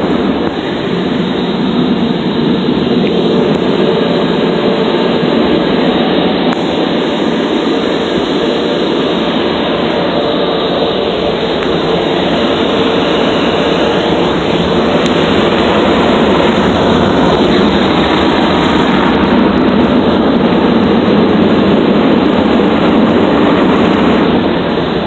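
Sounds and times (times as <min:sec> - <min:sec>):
dryer blowers rushing air: 0:00.0 - 0:25.0.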